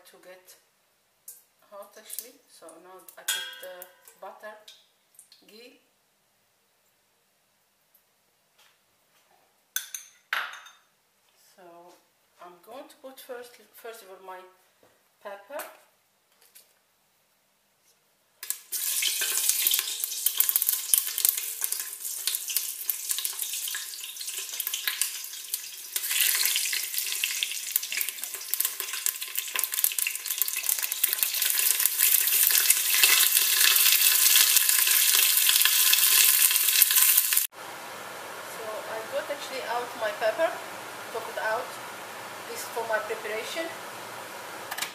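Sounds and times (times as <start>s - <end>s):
peppers sizzling in hot oil: 18.4s - 37.5s.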